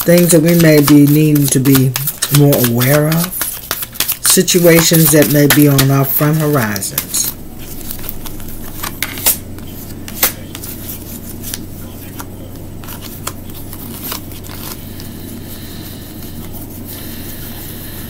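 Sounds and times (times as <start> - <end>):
cards shuffled by hand: 0.0 - 18.0
steady low hum: 0.0 - 18.0
sharp card snaps: 10.1 - 10.4.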